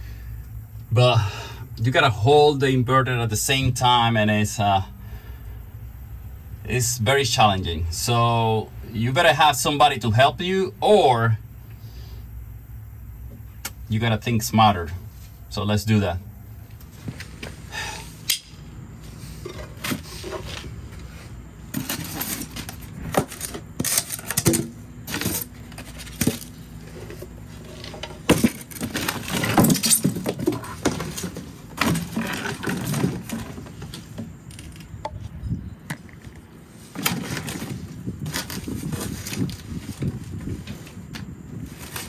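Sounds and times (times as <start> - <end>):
scraping and rattling: 19.1 - 35.0, 36.2 - 40.8
tools and metal hardware clattering: 21.6 - 35.0, 35.9 - 40.1.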